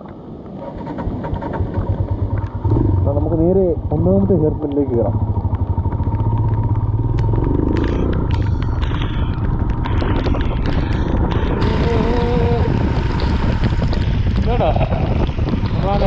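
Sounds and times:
motorcycle engine running: 1.3s - 16.0s
wind noise on microphone: 7.5s - 16.0s.

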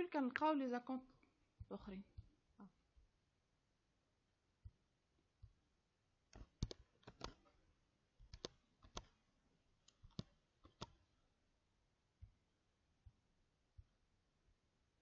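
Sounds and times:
computer mouse and keyboard clicks: 6.3s - 7.6s, 8.2s - 9.2s, 9.8s - 11.0s.

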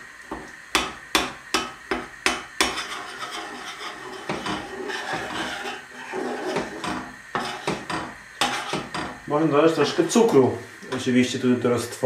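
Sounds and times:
spoon scraping around pan: 2.6s - 10.2s.

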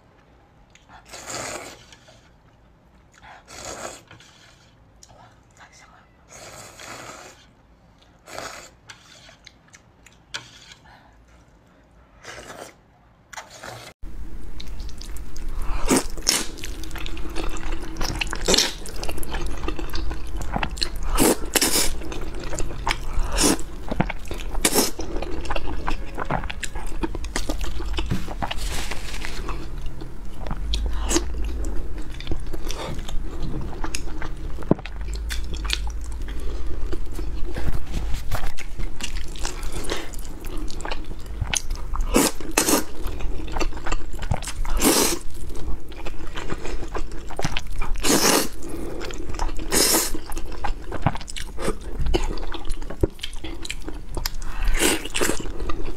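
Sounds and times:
low hum: 14.0s - 42.1s
slurping and chewing noodles: 14.6s - 55.9s.

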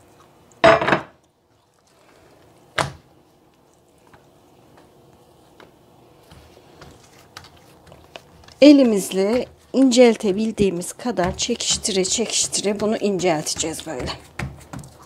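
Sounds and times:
dough handled on countertop: 4.1s - 15.0s.

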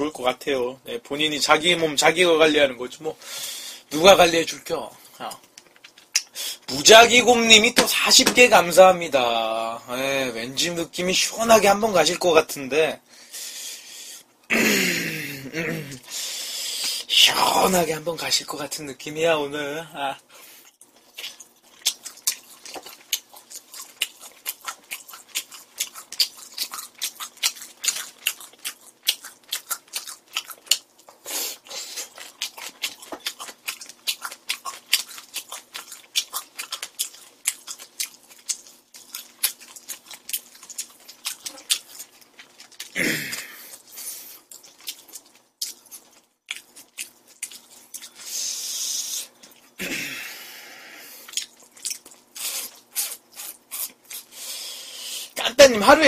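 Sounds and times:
wet chewing smacks: 20.8s - 48.3s, 51.2s - 54.3s.

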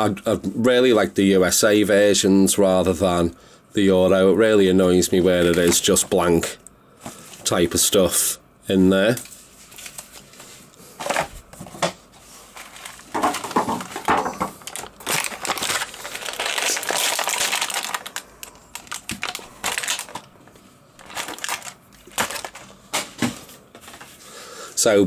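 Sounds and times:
plastic packaging crinkling: 5.2s - 6.3s, 9.2s - 11.6s, 12.2s - 24.1s.

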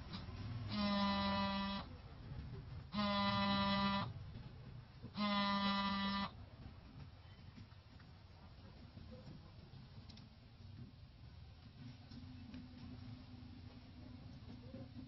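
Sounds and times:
horn blasts: 0.7s - 1.9s, 2.9s - 4.1s, 5.2s - 6.4s.

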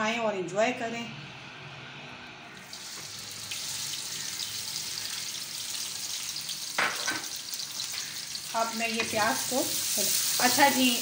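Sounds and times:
onions sizzling in hot oil: 2.6s - 11.0s.

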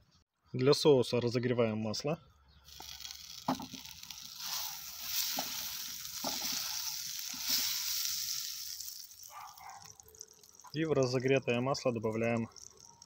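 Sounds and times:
butter sizzling in a frying pan: 2.7s - 10.8s.

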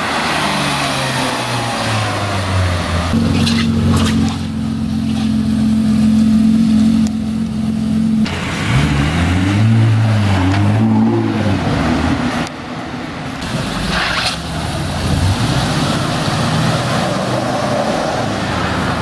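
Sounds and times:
street traffic: 0.0s - 19.0s
sports car engine revving: 0.8s - 12.5s.

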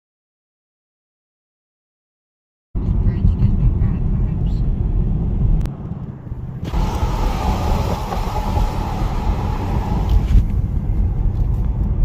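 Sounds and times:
road rumble: 2.8s - 12.0s
wind and tyre noise: 2.8s - 12.0s.

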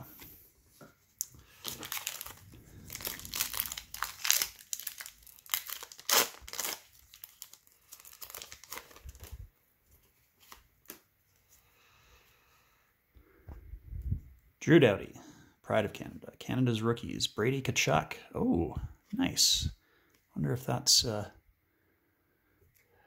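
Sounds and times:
plastic wrapper crinkling and tearing: 1.1s - 11.1s.

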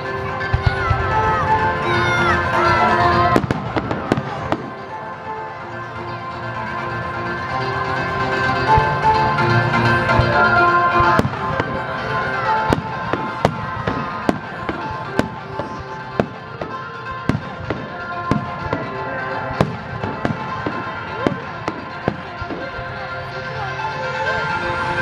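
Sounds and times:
music playing: 0.0s - 25.0s
fireworks bursting: 0.4s - 5.0s, 11.0s - 22.9s.

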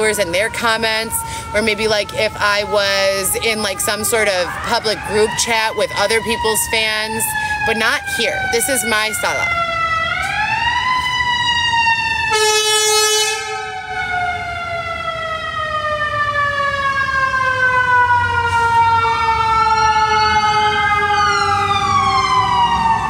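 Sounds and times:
emergency siren wailing: 0.0s - 23.0s
short siren blare: 8.4s - 23.0s.

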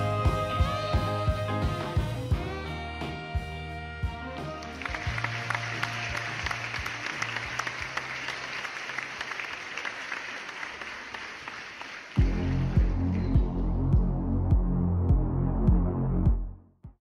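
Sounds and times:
audience applauding: 4.5s - 12.8s.

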